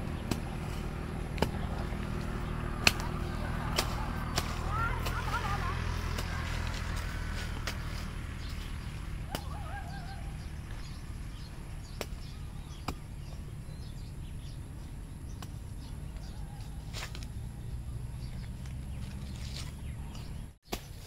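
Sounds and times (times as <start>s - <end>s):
hand tool chopping into dry soil: 0.0s - 9.6s, 11.8s - 13.2s, 15.3s - 15.6s, 16.8s - 17.4s, 19.0s - 21.0s
steady low rumble: 0.0s - 20.6s
birds chirping: 0.0s - 21.0s
bird warbling call: 9.1s - 14.6s.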